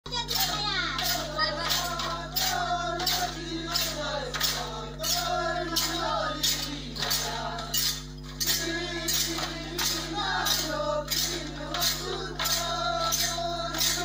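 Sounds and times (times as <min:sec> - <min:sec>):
jingling rattling percussion: 0:00.1 - 0:14.0
voices singing together: 0:00.1 - 0:14.0.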